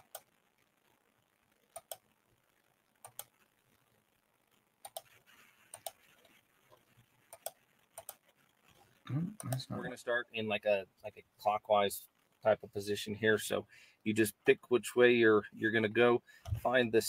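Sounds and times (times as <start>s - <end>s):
computer mouse clicking: 1.7s - 2.0s, 3.0s - 3.4s, 4.8s - 8.3s.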